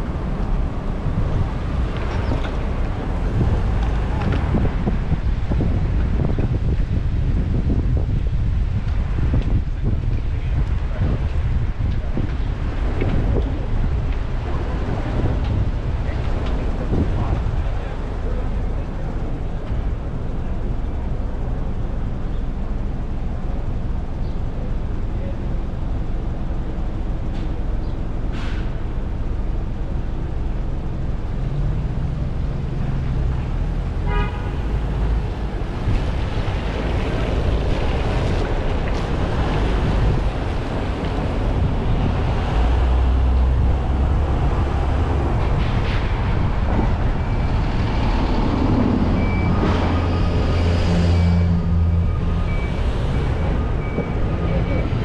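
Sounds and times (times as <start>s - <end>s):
city road traffic: 0.0s - 55.0s
car horn toot: 34.0s - 34.7s.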